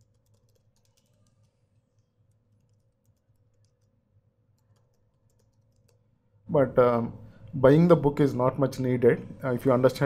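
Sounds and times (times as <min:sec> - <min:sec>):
keyboard typing: 0:00.0 - 0:06.1
low steady hum: 0:00.0 - 0:10.0.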